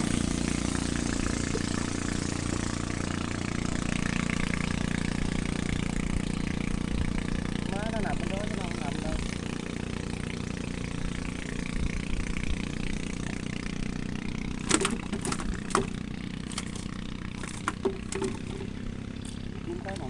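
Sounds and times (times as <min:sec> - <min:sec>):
small engine running steadily: 0:00.0 - 0:20.0
sharp clicks or knocks: 0:14.6 - 0:16.8, 0:17.4 - 0:18.8.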